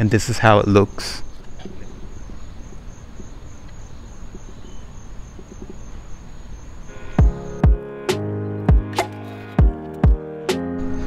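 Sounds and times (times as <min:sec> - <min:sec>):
insects trilling: 0:00.4 - 0:07.8.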